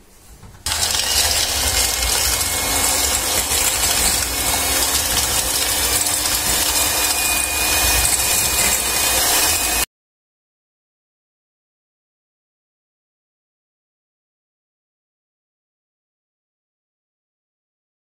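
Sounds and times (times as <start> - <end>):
electric hand mixer whipping: 0.7 - 9.9.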